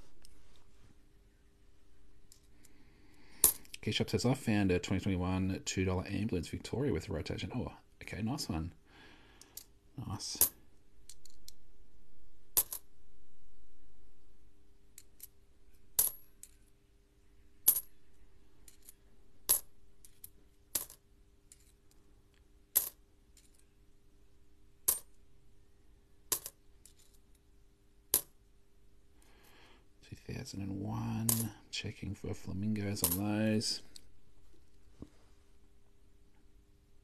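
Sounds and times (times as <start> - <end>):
coins clicking together: 18.7 - 21.8, 26.3 - 27.2, 31.3 - 31.5.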